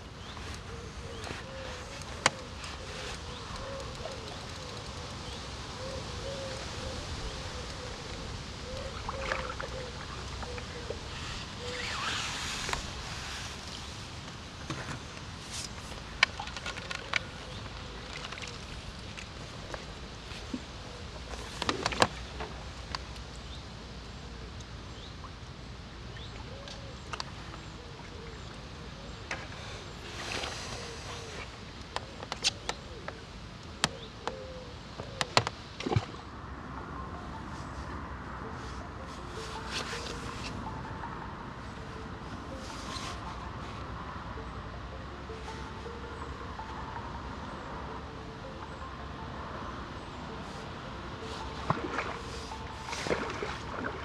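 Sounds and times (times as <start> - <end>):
faint bird calls: 0.0 - 14.0, 26.0 - 36.1
outdoor background rush: 0.0 - 54.0.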